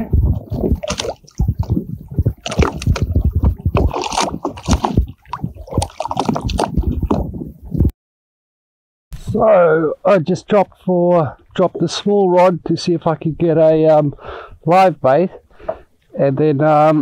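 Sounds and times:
water sloshing and splashing: 0.0s - 7.9s.

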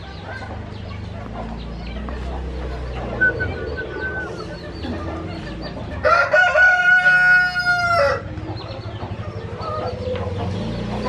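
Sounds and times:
rooster crowing: 6.0s - 8.3s.

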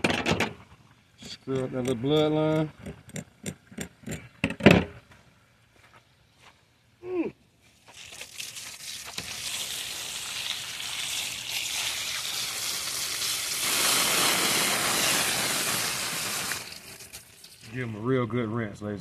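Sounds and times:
water spraying from hose: 7.8s - 17.7s.

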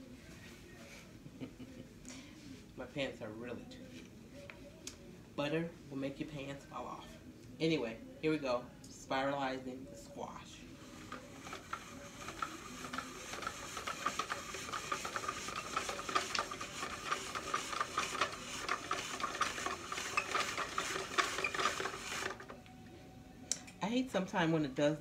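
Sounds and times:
spiralizer blade scraping squash: 10.8s - 22.6s.

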